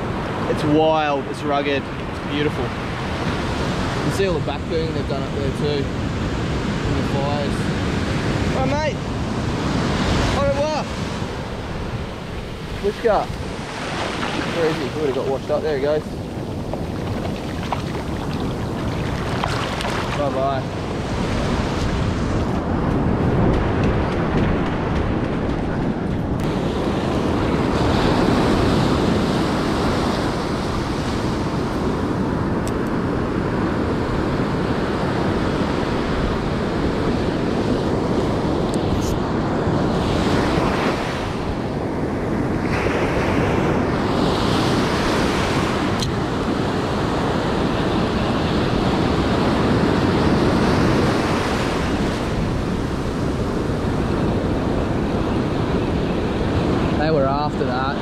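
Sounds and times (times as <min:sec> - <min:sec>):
surf breaking on beach: 0:00.0 - 0:25.7
wind buffeting microphone: 0:00.0 - 0:58.0.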